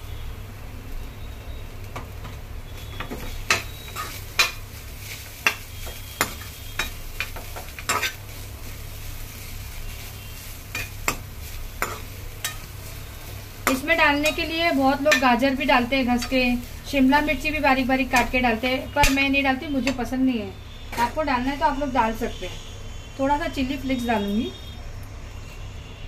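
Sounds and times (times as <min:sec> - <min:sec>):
faint sizzle: 0:00.0 - 0:26.0
steel spoon scraping a frying pan: 0:03.2 - 0:20.0
spoon clinking against pan: 0:19.0 - 0:19.2.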